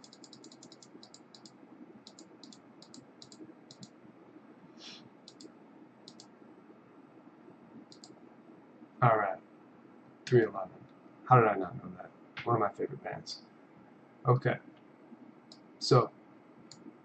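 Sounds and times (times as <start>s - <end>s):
rapid light clicks: 0.0s - 4.0s, 5.3s - 6.3s, 7.8s - 8.2s
soft hiss: 0.0s - 17.0s.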